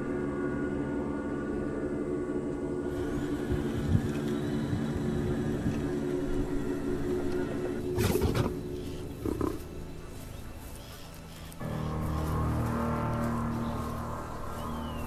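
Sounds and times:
low drone: 0.0 - 15.0
lions snarling: 7.9 - 9.7.

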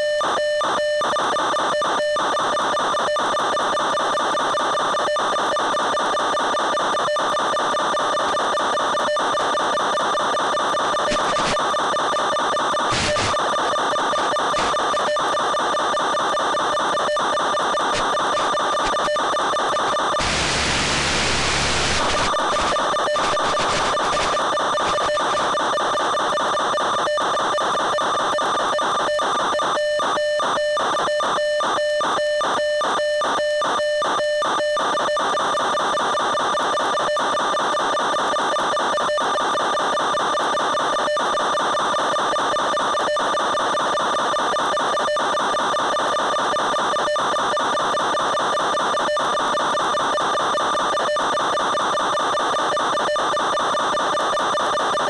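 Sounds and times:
static hiss: 12.9 - 13.3, 20.2 - 25.0.

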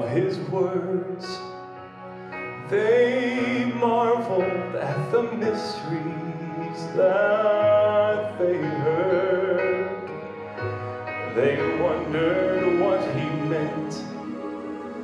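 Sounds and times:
man singing gospel ballad: 0.0 - 1.6, 2.4 - 14.2
instrumental accompaniment: 0.0 - 15.0.

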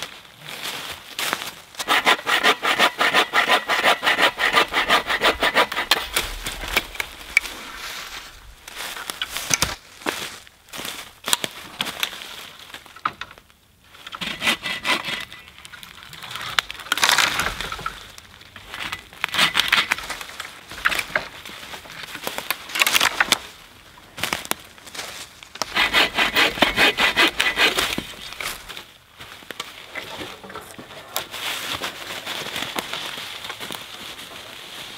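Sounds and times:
bow saw cutting wood: 1.8 - 7.3, 14.1 - 15.4, 25.6 - 28.6.

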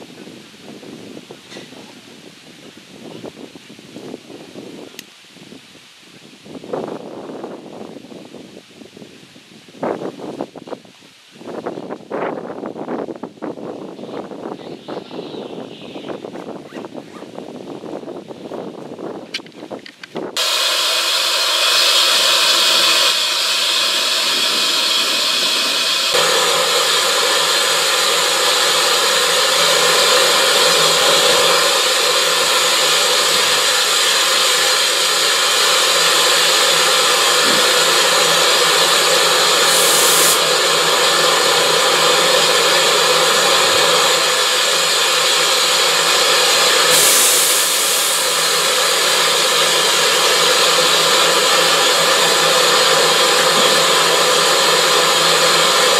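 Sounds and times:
steam locomotive hissing: 20.2 - 55.9.

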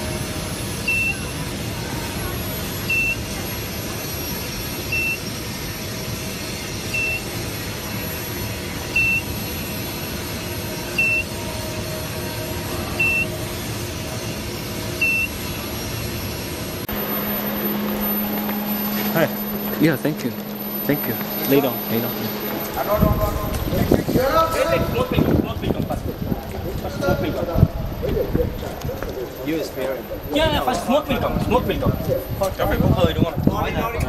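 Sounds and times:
industrial equipment hum: 0.0 - 33.0
short high electronic beeps: 16.9 - 24.1.

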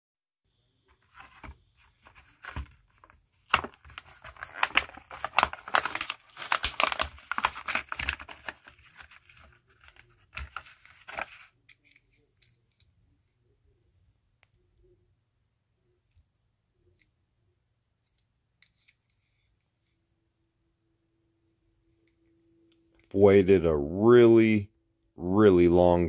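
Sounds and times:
stiff plastic crackling: 0.9 - 12.8
cardboard tearing: 1.1 - 11.5.

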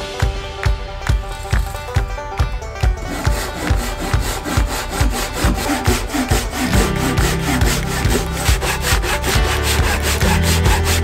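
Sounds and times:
hand saw cutting wood: 2.9 - 11.0.

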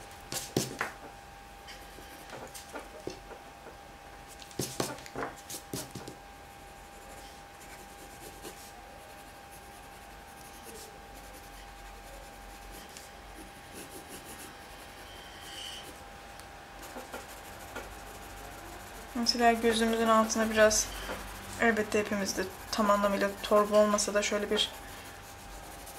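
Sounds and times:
pencil scratching on paper: 0.3 - 0.8, 4.6 - 6.1, 6.8 - 16.0, 16.8 - 25.9.

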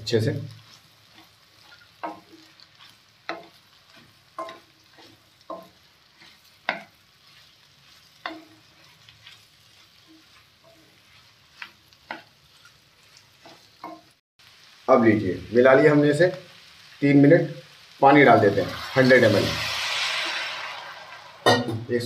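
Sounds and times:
vegetables sizzling faintly: 0.0 - 22.0
spatula scraping a metal pan: 0.6 - 14.1.

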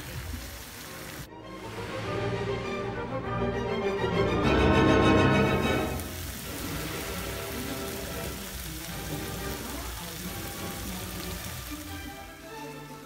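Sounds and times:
gravy sizzling in a frying pan: 0.0 - 1.3, 4.5 - 13.0.

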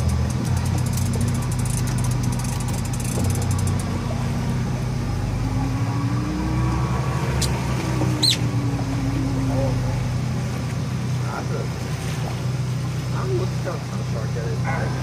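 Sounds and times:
fishing reel clicking: 0.0 - 3.9
low mechanical hum: 0.0 - 15.0.

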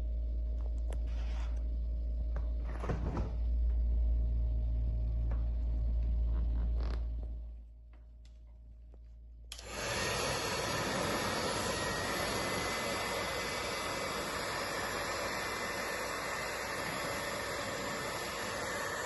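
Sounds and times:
hair dryer blowing: 9.5 - 19.0.

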